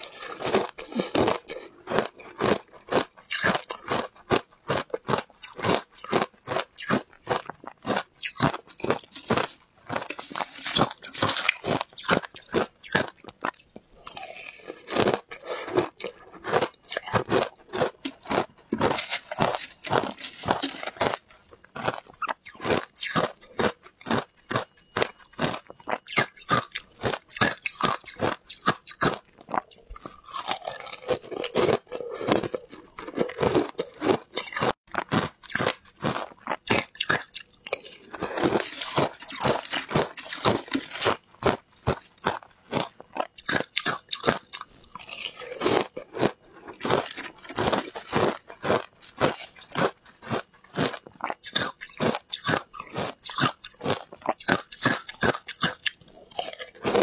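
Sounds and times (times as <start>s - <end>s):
ice chunks crunching in mouth: 0.0s - 57.0s.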